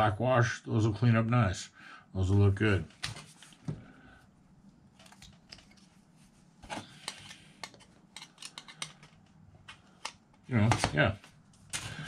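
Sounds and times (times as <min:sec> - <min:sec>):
plastic parts clicking together: 0:07.0 - 0:11.0.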